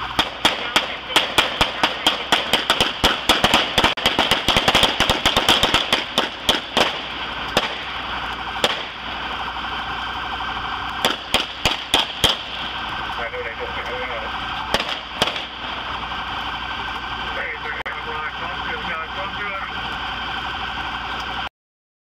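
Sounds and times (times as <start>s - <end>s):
gunshots: 0.1s - 8.0s, 8.6s - 9.1s, 11.0s - 12.7s, 14.7s - 15.7s.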